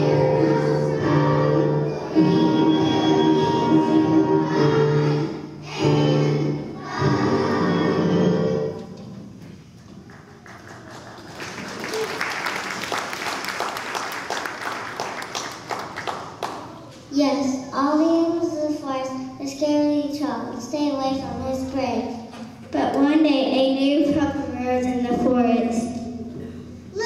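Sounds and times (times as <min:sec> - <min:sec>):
children singing: 0:00.0 - 0:08.8
musical accompaniment: 0:00.0 - 0:09.4
audience applauding: 0:09.9 - 0:16.7.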